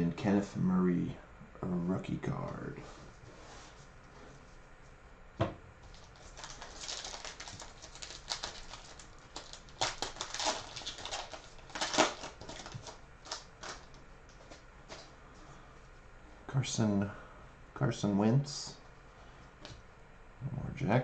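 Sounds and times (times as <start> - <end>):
foil wrapper crinkling: 5.8 - 15.1.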